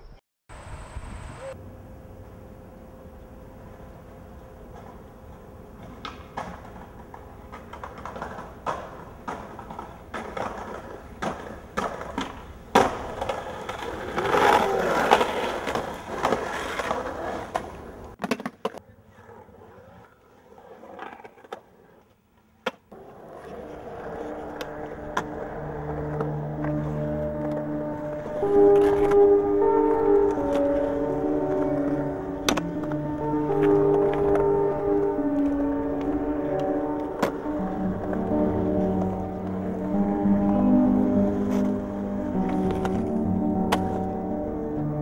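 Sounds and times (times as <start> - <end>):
skateboard wheels rolling on concrete: 0.5 - 45.0
skateboard scraping: 4.6 - 44.8
skateboard clacks: 4.7 - 38.2
music: 23.5 - 45.0.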